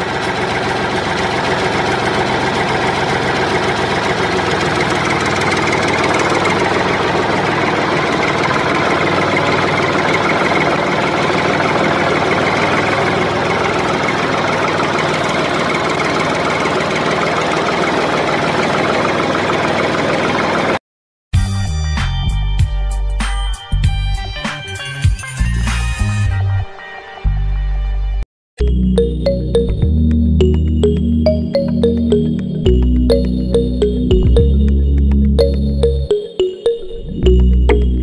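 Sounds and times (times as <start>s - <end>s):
tractor engine chugging: 0.0s - 20.8s, 30.4s - 36.2s.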